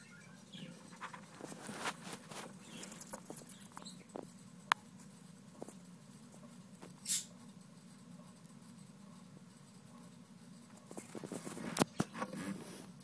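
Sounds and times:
lizard feeding clicks and scratches: 0.9 - 4.0, 10.8 - 13.0.

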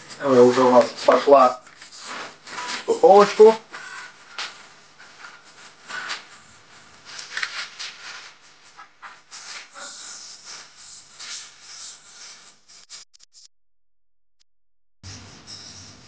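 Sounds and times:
hands rubbing and patting dough: 0.0 - 13.0
plastic film rustling: 0.1 - 11.6.

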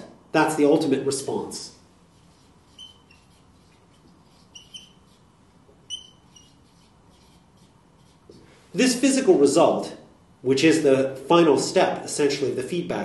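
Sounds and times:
marker squeaking on whiteboard: 2.1 - 8.4.

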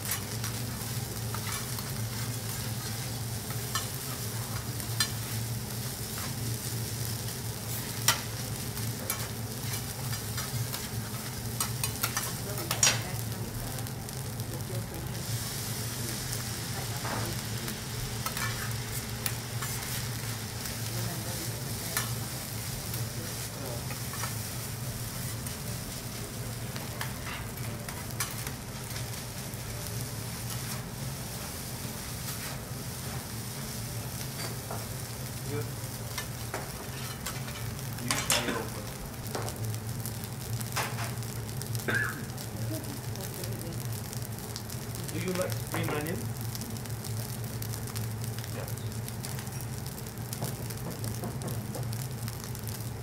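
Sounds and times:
cooking tools clicking and scraping: 0.0 - 5.4, 6.0 - 6.4, 7.7 - 13.2, 18.2 - 20.2, 23.8 - 24.5, 26.7 - 29.4, 32.2 - 34.9, 36.1 - 39.6, 40.7 - 41.3, 48.8 - 52.0
food sizzling on a griddle: 0.0 - 53.0.

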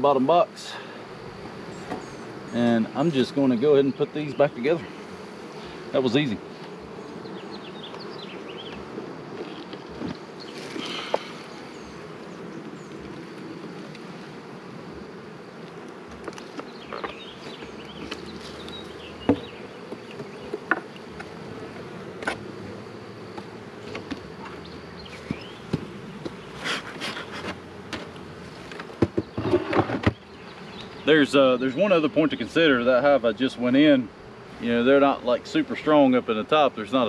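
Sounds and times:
honeybees buzzing: 0.0 - 37.0
wooden knocks and scrapes: 23.3 - 30.2.

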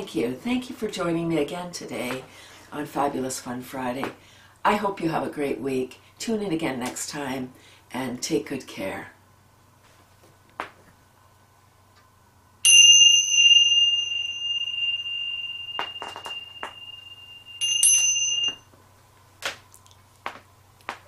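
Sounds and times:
small cymbals ringing: 12.6 - 18.7.

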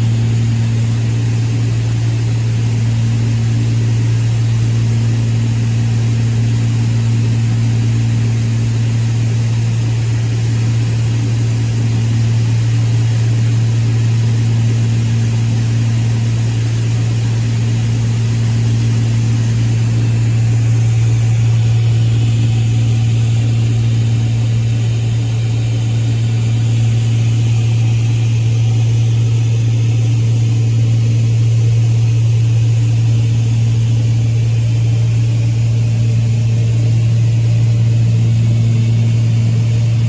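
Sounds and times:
aircraft engines droning: 15.4 - 32.2, 33.3 - 40.0.

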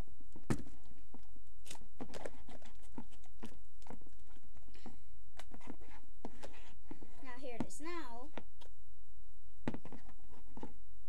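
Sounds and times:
spoon stirring sticky slime: 1.6 - 4.8.

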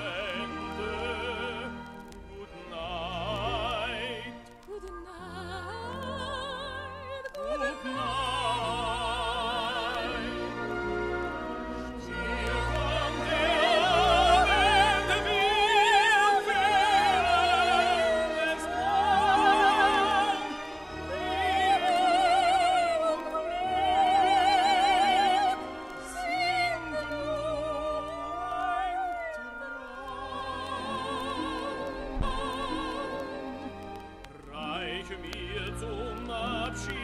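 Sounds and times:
high voice singing operetta: 0.0 - 10.5
orchestra: 0.0 - 37.0.

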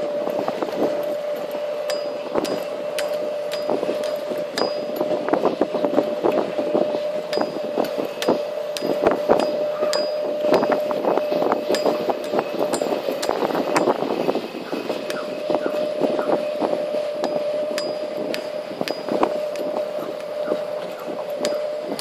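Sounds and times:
buggy motor whine: 0.0 - 22.0.

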